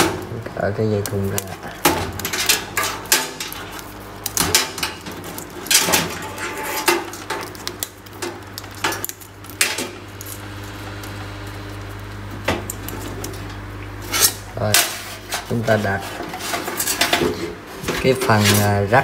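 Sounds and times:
cables clicking and rattling in metal case: 1.0 - 11.1.

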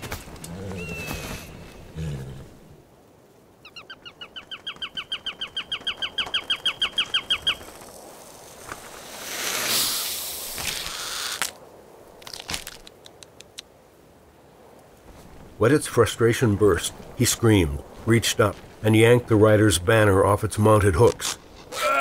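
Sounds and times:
faint clicks: 12.2 - 13.7.

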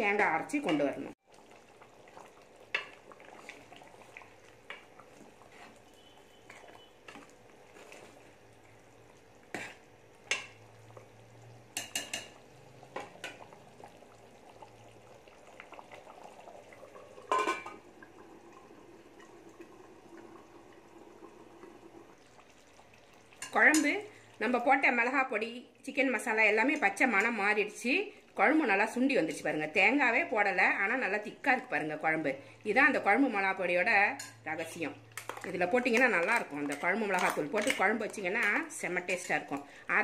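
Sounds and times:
ladle scraping metal pot: 5.4 - 8.2.

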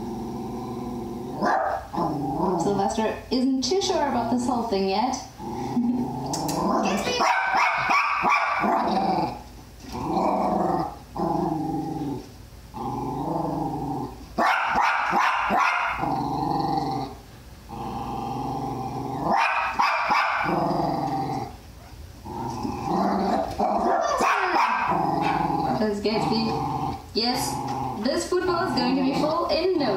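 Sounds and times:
dog growling and whining: 0.0 - 2.8, 5.3 - 7.9, 8.6 - 14.3, 15.5 - 19.5, 20.4 - 29.5
dog barking sharply: 1.4 - 1.8, 7.2 - 8.8, 14.4 - 16.0, 19.3 - 20.5, 23.8 - 24.9.

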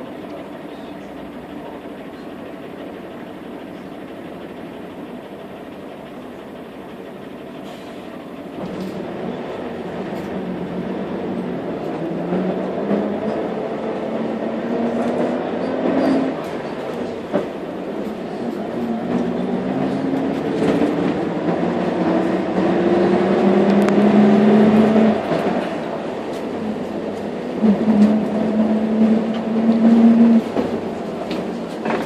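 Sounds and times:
bus drivetrain whine: 0.0 - 32.0
bus running rumble: 0.0 - 32.0.

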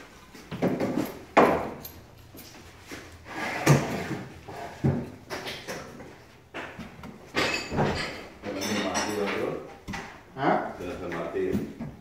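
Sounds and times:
hand tools knocking and thumping: 0.4 - 2.0, 10.8 - 12.0.

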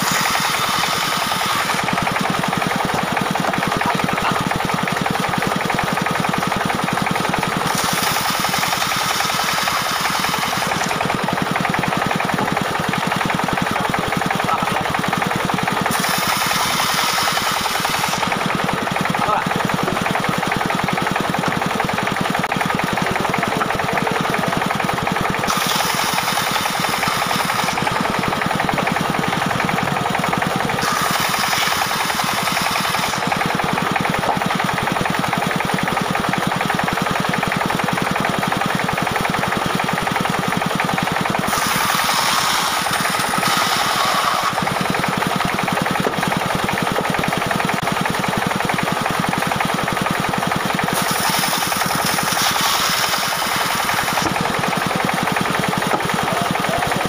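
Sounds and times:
saw blade hissing through log: 0.0 - 1.9, 7.6 - 10.9, 15.8 - 18.4, 25.5 - 28.1, 30.8 - 33.5, 41.5 - 44.8, 50.9 - 54.4
diesel engine running: 0.0 - 57.0.

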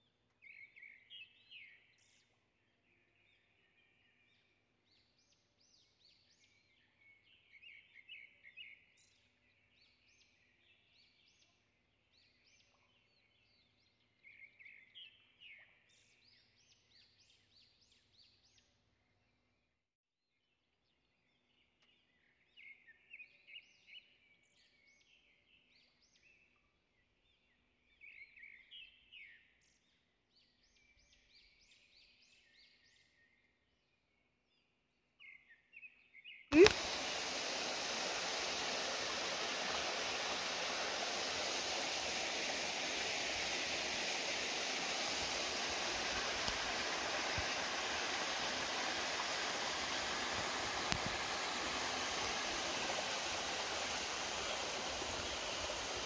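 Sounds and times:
stream rushing over rocks: 36.5 - 56.0.

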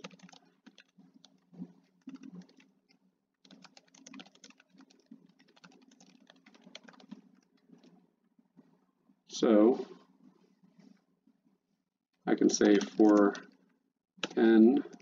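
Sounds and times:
faint keyboard typing: 0.0 - 8.0, 12.2 - 15.0.

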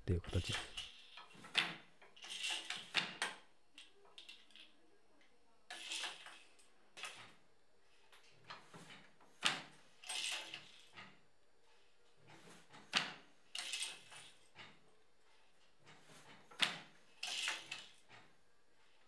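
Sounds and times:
shuttle sliding and rattling: 0.5 - 3.5, 5.7 - 19.0.

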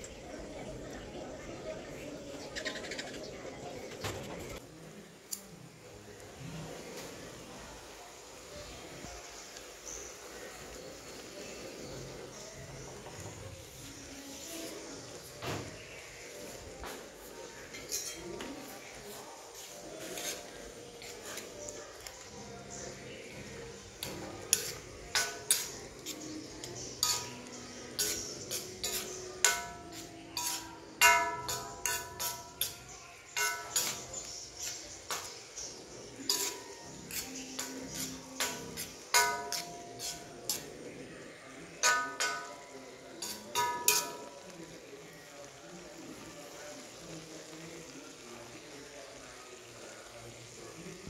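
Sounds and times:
faint steady hiss: 4.6 - 51.0
metal spoon clanking on wok: 24.0 - 35.4, 36.2 - 40.7, 41.8 - 44.4.

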